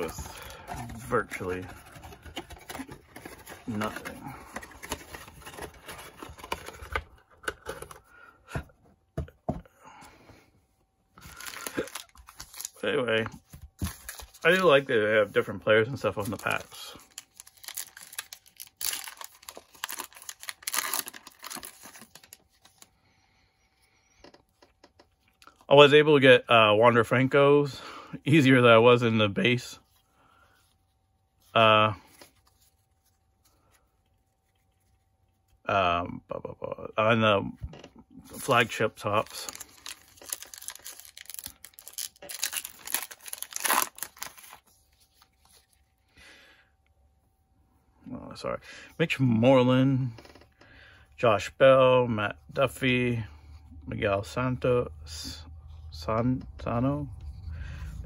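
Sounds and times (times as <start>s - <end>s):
wrapper tearing and crinkling: 11.3s - 12.8s, 16.1s - 22.4s, 38.4s - 45.7s.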